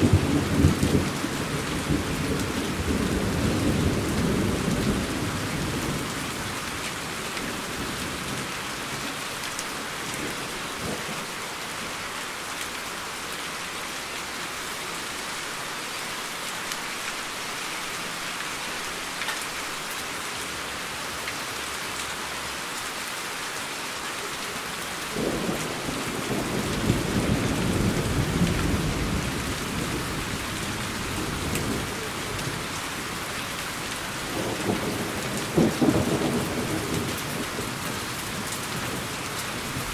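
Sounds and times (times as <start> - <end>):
heavy rain: 0.0 - 39.9
thunder rumbling: 25.2 - 32.7, 34.3 - 38.1.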